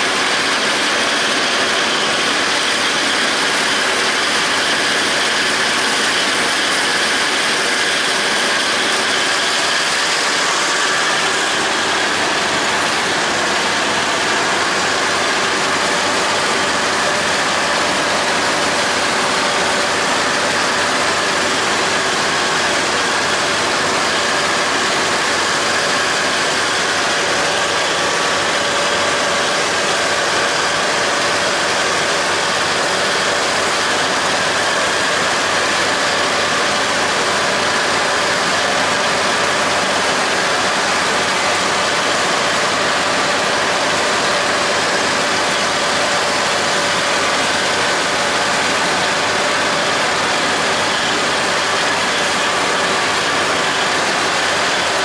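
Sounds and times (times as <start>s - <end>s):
disc mower cutting grass: 0.0s - 55.0s
tractor diesel engine running: 0.0s - 55.0s.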